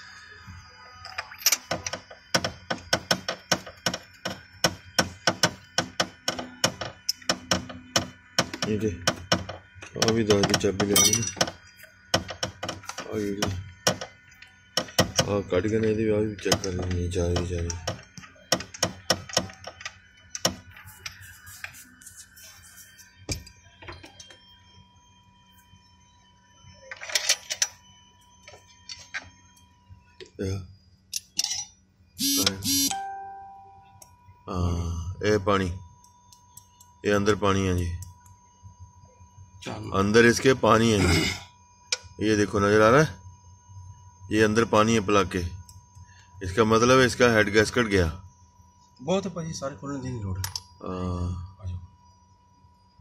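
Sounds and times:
wrench knocking: 1.5s - 14.1s, 16.4s - 20.6s.

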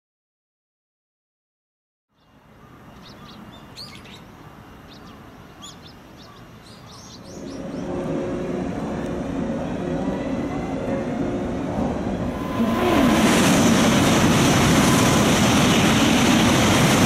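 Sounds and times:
small birds chirping: 2.1s - 8.0s
electric train humming: 6.5s - 17.0s.

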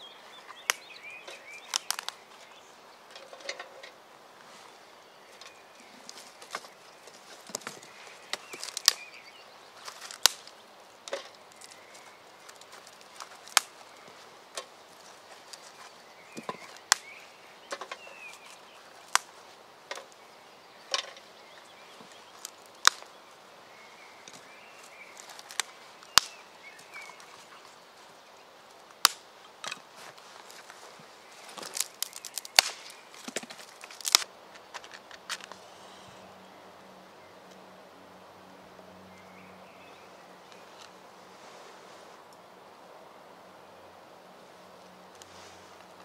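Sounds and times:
faint birdsong: 0.0s - 46.0s.

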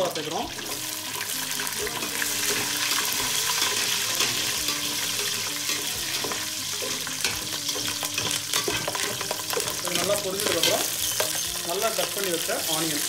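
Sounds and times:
spices sizzling in oil: 0.0s - 13.0s
metal spoon scraping a pot: 1.8s - 11.6s.

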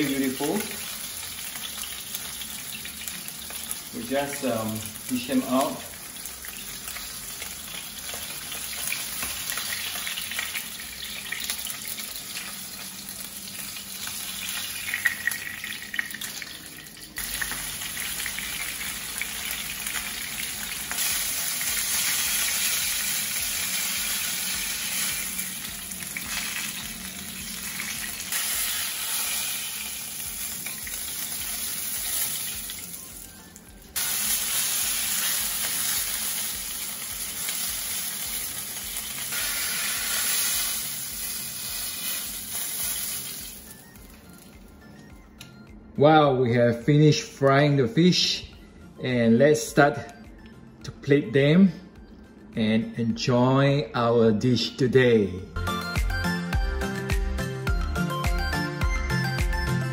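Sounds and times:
fish sizzling in hot oil: 0.0s - 44.5s.

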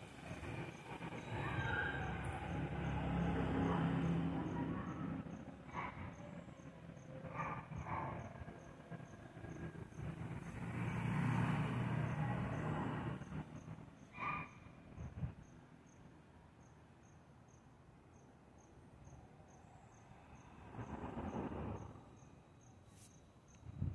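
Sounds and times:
crickets chirping: 0.0s - 23.9s
rumbling noise: 20.6s - 22.2s.

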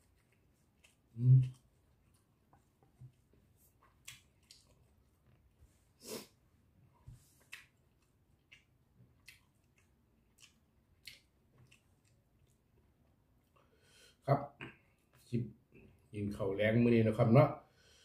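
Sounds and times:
man chewing food: 0.0s - 16.0s
breath: 13.6s - 14.2s, 17.7s - 18.0s.

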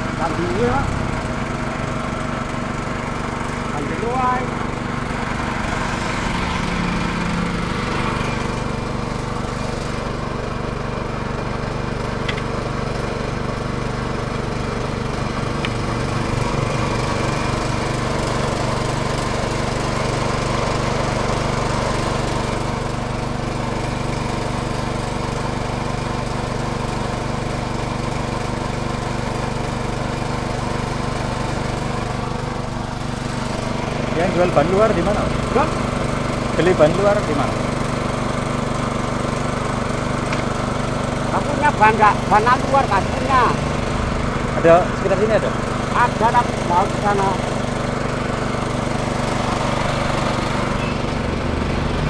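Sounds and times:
small engine running: 0.0s - 52.0s.

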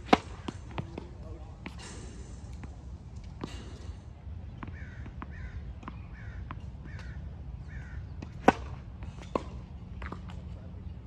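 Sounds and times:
racket hitting ball: 0.0s - 1.8s, 8.2s - 10.4s
tennis ball bouncing on court: 0.0s - 1.8s, 8.2s - 10.4s
crows cawing: 4.7s - 5.6s, 6.2s - 8.0s.

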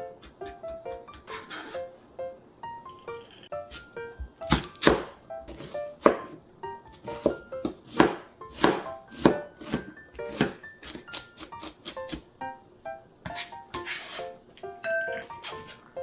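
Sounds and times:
light background music: 0.0s - 16.0s
knife chopping on cutting board: 4.5s - 6.4s, 7.0s - 12.2s.

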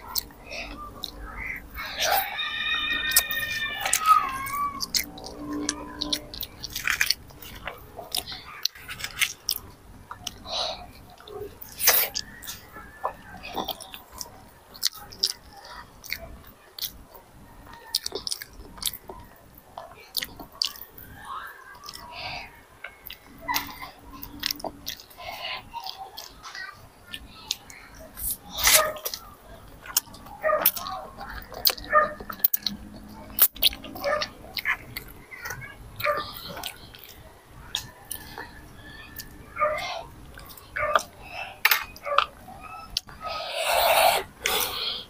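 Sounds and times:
children chewing noodles: 0.0s - 45.0s.

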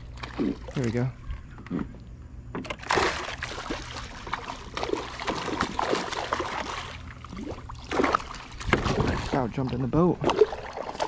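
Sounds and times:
fish splashing in water: 2.7s - 11.0s.

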